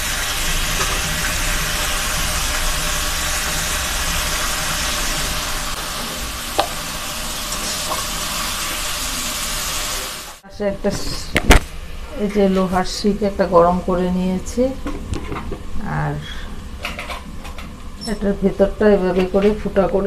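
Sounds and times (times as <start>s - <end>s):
vegetables sizzling in a wok: 0.0s - 13.4s.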